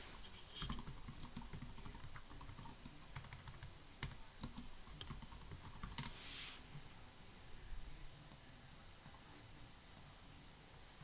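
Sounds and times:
faint keyboard typing: 0.0s - 6.2s.

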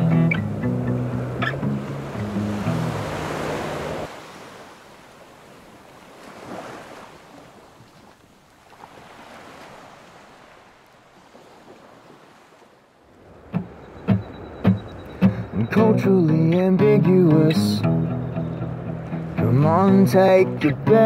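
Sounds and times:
music: 0.0s - 3.1s, 13.6s - 21.0s
sea waves washing: 0.0s - 21.0s
wind: 0.0s - 21.0s.

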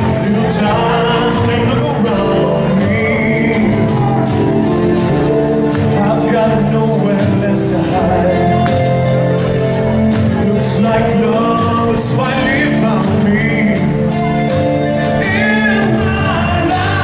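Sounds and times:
choir singing along: 0.0s - 9.0s, 15.0s - 17.0s
lead vocal singing: 0.0s - 17.0s
live rock band: 0.0s - 17.0s.

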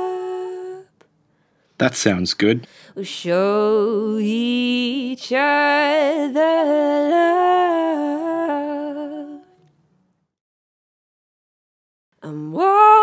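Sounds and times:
woman singing long held notes: 0.0s - 0.9s, 2.9s - 9.6s, 12.2s - 13.0s.

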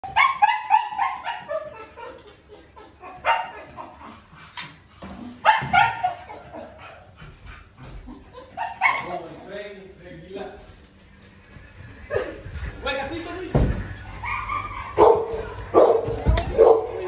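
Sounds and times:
dogs yipping and whining: 0.0s - 9.4s, 13.6s - 17.0s.

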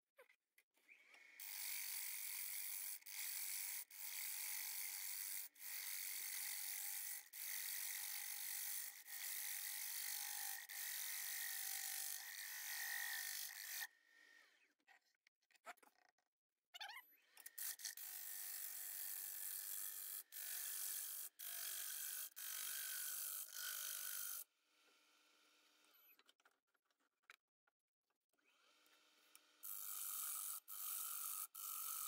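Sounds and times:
gouge cutting wood on lathe: 1.4s - 13.8s, 29.6s - 32.0s.

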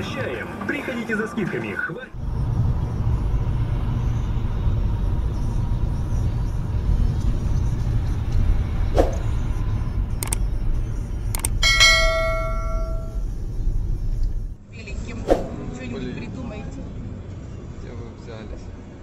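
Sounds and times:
car driving on snowy road: 2.1s - 19.0s
sharp clicks: 10.2s - 10.5s, 11.3s - 11.6s
ringing chime: 11.6s - 13.2s.

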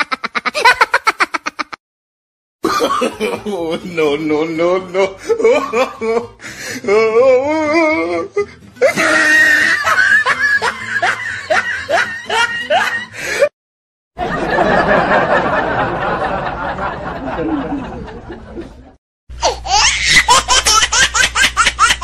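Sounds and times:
comedy laughter sound effects: 0.0s - 1.8s, 2.6s - 3.7s, 5.0s - 6.4s, 8.8s - 13.5s, 14.2s - 22.0s.

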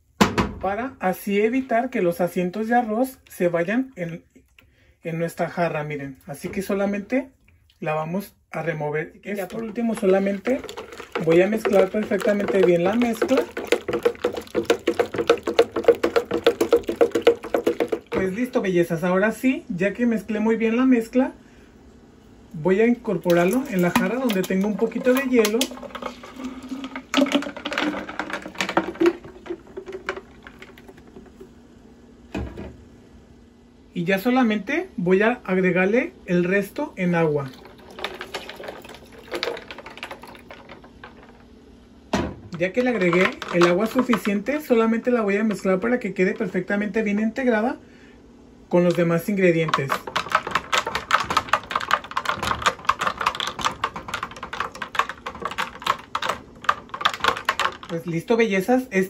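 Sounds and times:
liquid pouring over ice: 9.4s - 18.4s, 23.1s - 31.5s, 37.4s - 41.4s, 49.7s - 58.0s.

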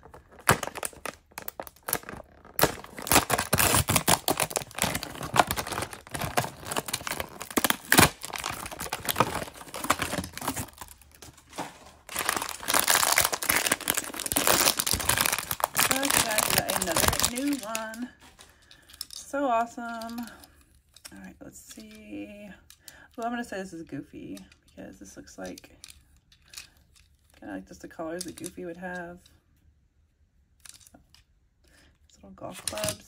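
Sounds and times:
foil packaging crinkling and tearing: 0.0s - 18.6s.

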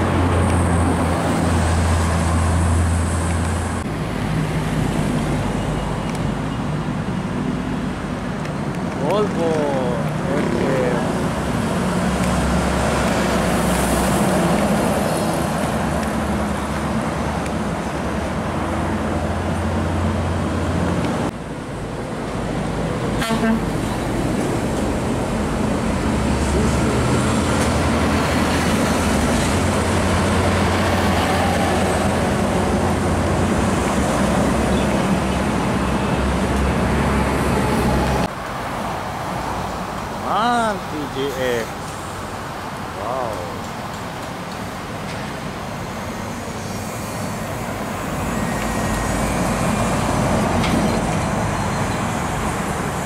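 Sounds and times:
diesel truck engine drone: 0.0s - 53.0s
tyre and traffic noise: 0.0s - 53.0s
truck horn toot: 23.2s - 23.7s.

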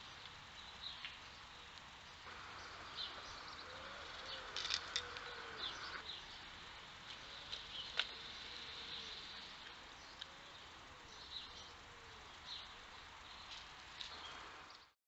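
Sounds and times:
rustling in dry leaves: 0.0s - 15.0s
small birds chirping: 0.0s - 15.0s
sharp clicks in leaf litter: 0.2s - 1.9s, 4.4s - 5.3s, 7.0s - 10.4s, 13.3s - 14.8s.

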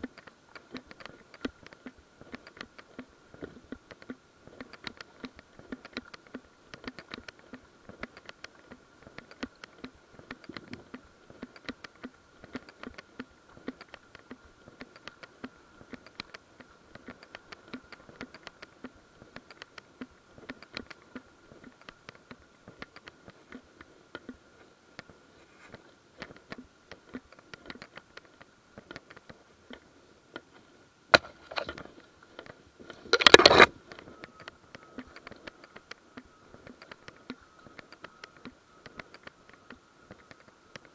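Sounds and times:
faint high whine: 29.5s - 40.9s.

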